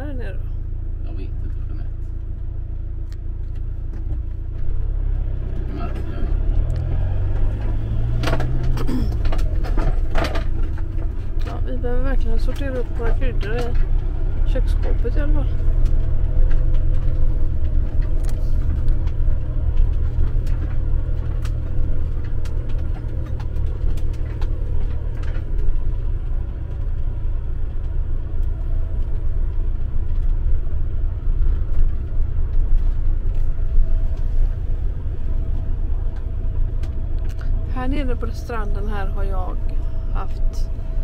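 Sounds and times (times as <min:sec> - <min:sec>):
engine and road rumble: 0:00.0 - 0:41.0
light clicks and rattles: 0:06.6 - 0:34.7.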